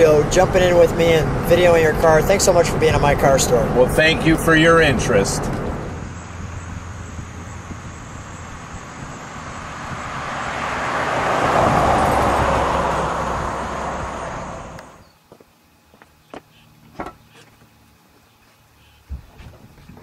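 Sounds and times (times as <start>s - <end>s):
car driving past: 5.4s - 15.0s.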